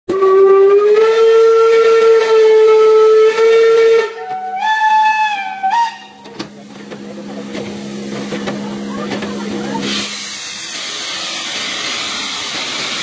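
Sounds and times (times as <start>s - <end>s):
steam locomotive whistle: 0.1s - 6.4s.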